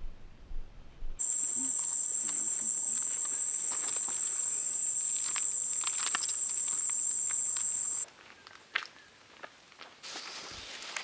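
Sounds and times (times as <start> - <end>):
insect high-pitched whine: 1.2 - 8.0
rustles on leaf litter: 1.2 - 8.0, 10.0 - 11.0.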